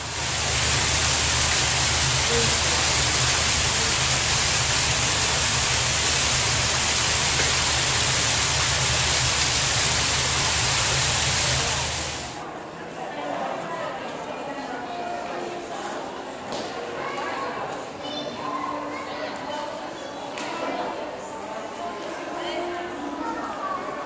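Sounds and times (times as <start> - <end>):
water pouring over stone ledge: 0.0 - 12.4.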